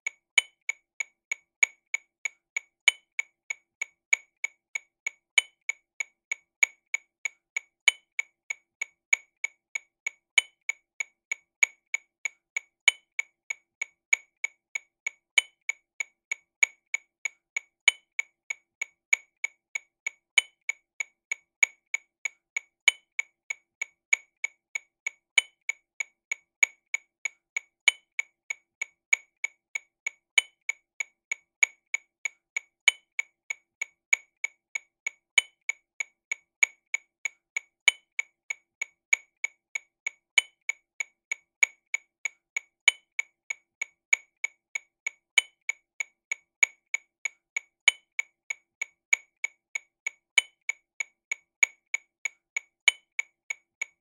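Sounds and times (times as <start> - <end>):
accented metronome clicks: 0.0 - 54.0
metronome clicks: 37.8 - 38.2, 42.8 - 43.2, 47.8 - 48.2, 52.8 - 53.2.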